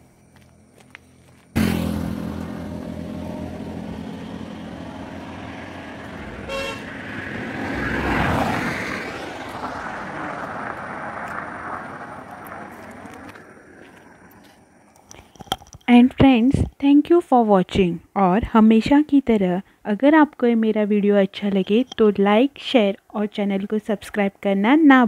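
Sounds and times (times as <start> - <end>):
highway traffic passing: 0.0 - 15.8, 21.2 - 22.5
vehicle engine: 0.0 - 15.8
vehicle passing close: 1.5 - 14.9
short horn toot: 6.4 - 6.9.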